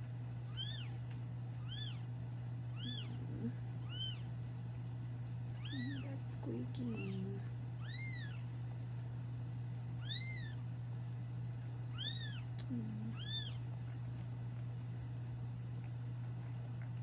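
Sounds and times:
steady low hum: 0.0 - 17.0
kitten mewing: 0.5 - 1.0, 2.7 - 4.3, 5.6 - 6.1, 6.9 - 8.5, 10.0 - 10.6, 11.9 - 13.7.

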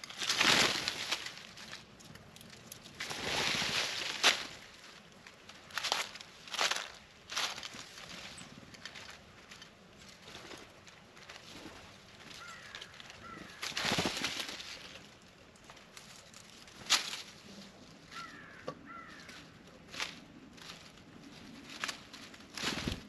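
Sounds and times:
rustle: 0.0 - 23.0
small birds chirping: 12.1 - 14.1.

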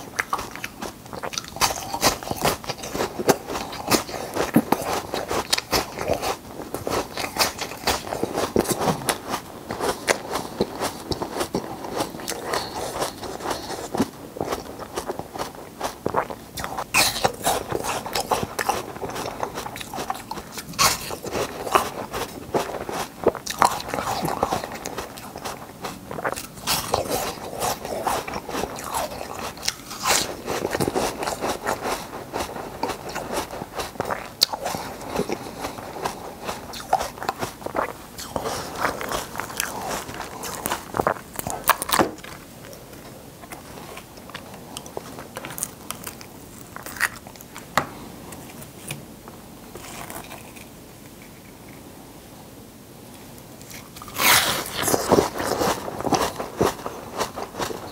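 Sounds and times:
ice crunching while chewed: 0.0 - 47.7, 49.7 - 51.7, 53.6 - 57.9.

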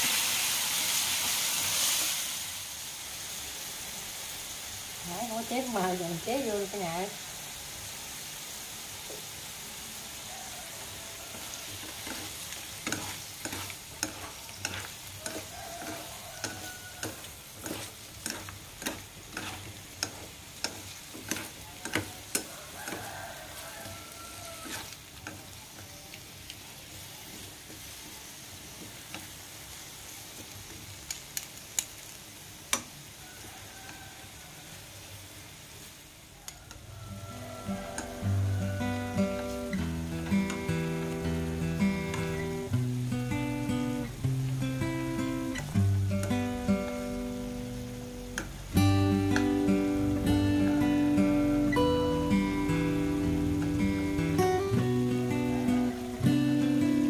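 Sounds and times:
food sizzling in a wok: 0.0 - 57.0
utensils scraping a wok: 11.3 - 26.3, 36.6 - 42.8.

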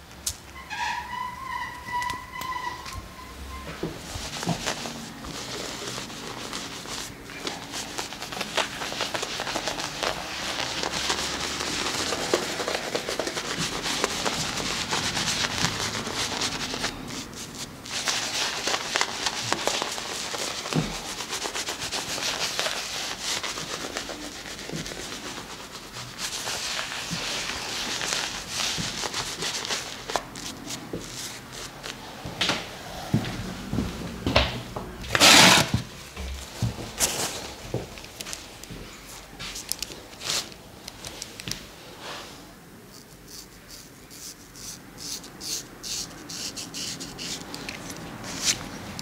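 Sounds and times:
soap lather rubbing on scalp: 4.0 - 32.0, 42.9 - 49.0.

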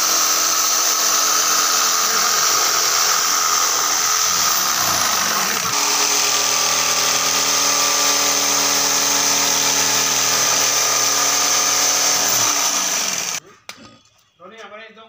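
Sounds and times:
electric jigsaw cutting wood: 0.0 - 13.4.

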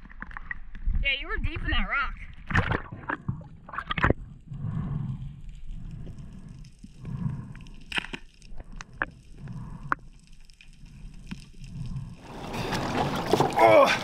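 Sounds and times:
muffled underwater rush: 2.4 - 7.5.

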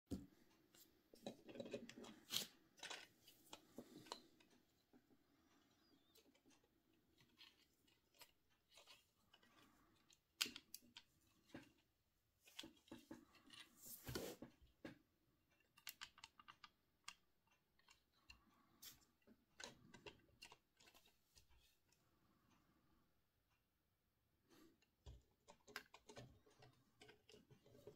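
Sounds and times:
plastic toy clicking when handled: 15.6 - 18.1.

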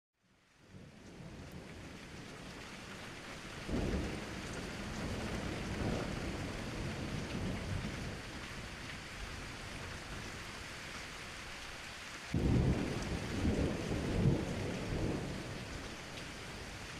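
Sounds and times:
rain hissing: 0.6 - 16.9
thunder rumble: 12.3 - 16.8.

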